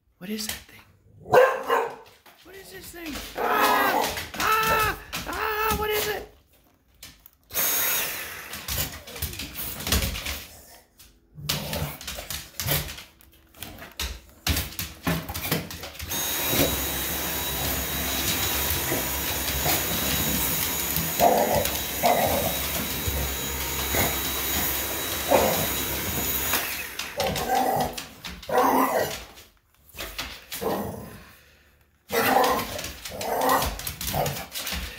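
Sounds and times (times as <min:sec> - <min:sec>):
dog barking: 0:01.2 - 0:02.1
vacuum motor whine: 0:07.6 - 0:08.7, 0:16.0 - 0:27.6.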